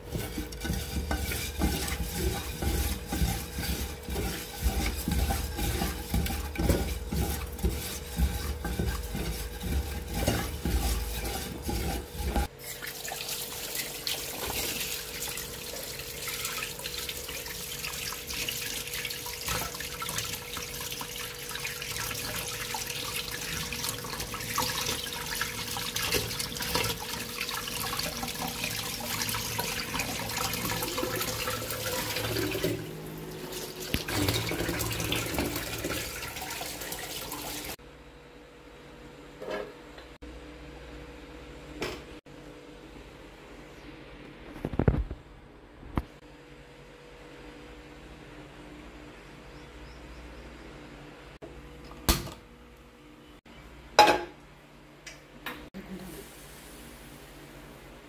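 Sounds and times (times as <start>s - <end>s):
tap water running: 0.0s - 37.8s.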